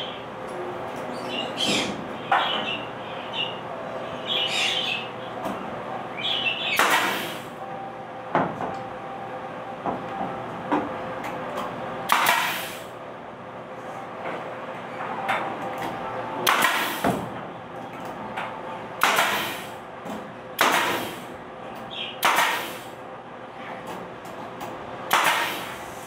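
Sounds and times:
nail gun firing: 6.8 - 7.4, 12.1 - 12.8, 16.4 - 17.2, 19.0 - 19.7, 20.6 - 21.2, 22.2 - 22.8, 25.1 - 25.7.

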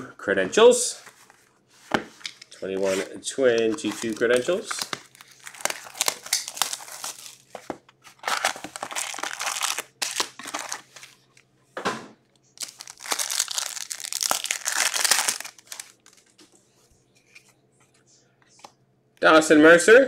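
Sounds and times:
cardboard and foil crinkling: 3.7 - 11.2, 12.6 - 16.4.

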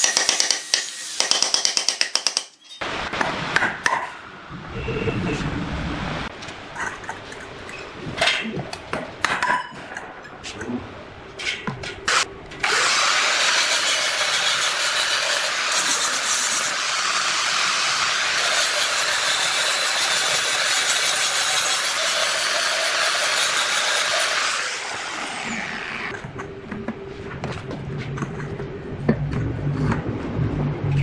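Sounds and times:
angle grinder grinding metal: 12.1 - 26.2.

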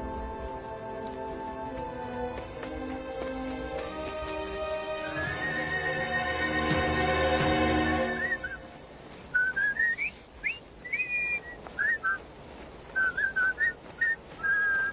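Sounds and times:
background music: 0.0 - 9.1
high whistled notes and glides: 4.1 - 12.2.

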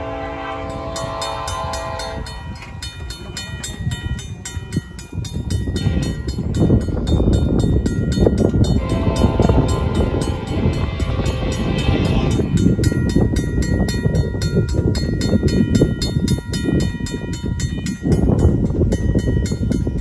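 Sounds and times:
locomotive horn: 0.0 - 2.4, 8.7 - 12.4
low rumble of train: 0.0 - 20.0
mechanical crossing bell ringing: 0.7 - 20.0.

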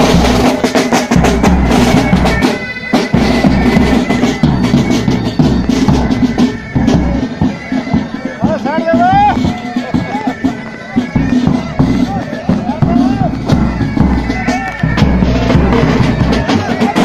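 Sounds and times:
bagpipes: 0.0 - 17.0
marching snare and tenor drums: 0.0 - 17.0
bass drum beat: 11.4 - 17.0.

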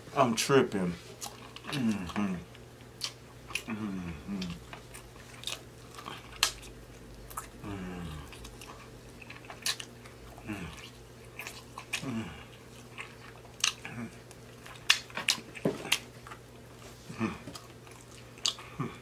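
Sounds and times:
wet chewing and sucking: 1.1 - 18.9
person humming: 1.7 - 2.5, 3.6 - 4.6, 7.6 - 8.3, 10.4 - 10.9, 12.0 - 12.5, 17.1 - 17.6, 18.6 - 19.0.

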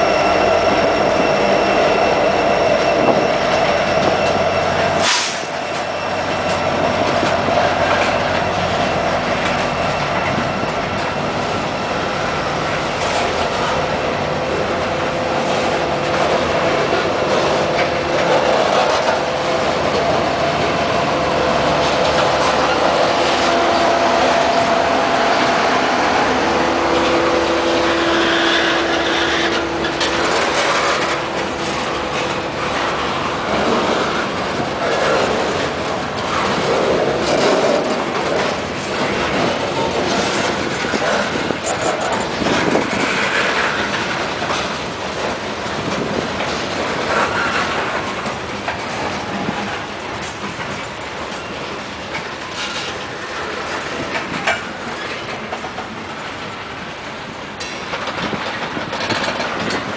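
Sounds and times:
train wheels rumbling on rails: 0.0 - 59.9
clicks and clanks: 57.6 - 59.9.

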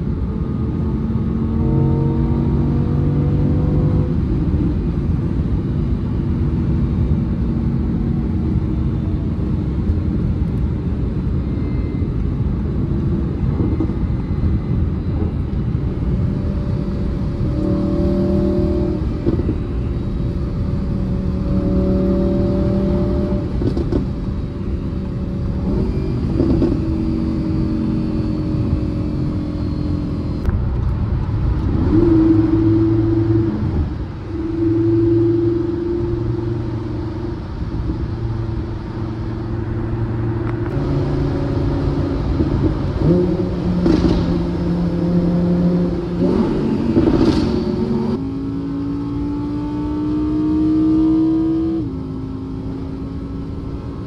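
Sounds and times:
wind and road noise: 0.0 - 54.0
sports car engine shifting gears: 16.4 - 54.0.

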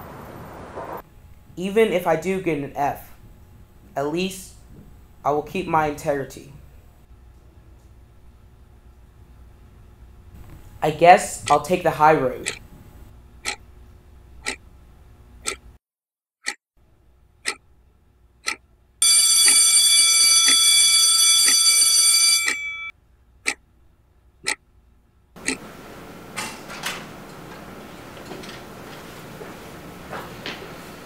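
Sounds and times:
clock ticking: 12.4 - 12.6, 13.4 - 13.6, 14.4 - 14.6, 15.4 - 15.6, 18.4 - 18.6, 25.4 - 25.6
school bell ringing: 19.0 - 22.9
hallway hiss: 25.6 - 31.0.

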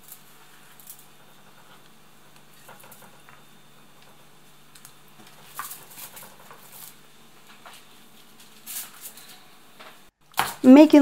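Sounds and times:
foil rustling and crinkling: 4.8 - 9.4.

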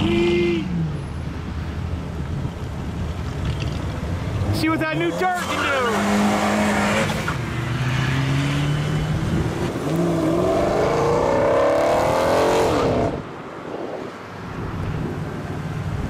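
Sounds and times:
car engine passing: 3.6 - 13.5
car accelerating hard: 4.4 - 13.2.

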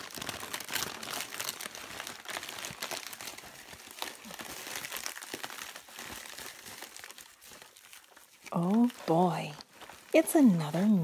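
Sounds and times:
wrapping paper and plastic crinkling: 0.0 - 11.0.

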